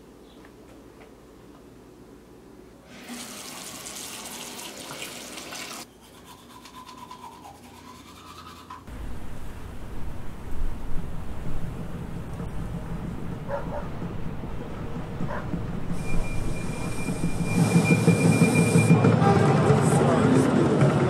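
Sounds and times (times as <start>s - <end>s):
teeth brushing strokes: 5.9s - 8.9s
loud low outdoor rumble: 8.9s - 17.6s.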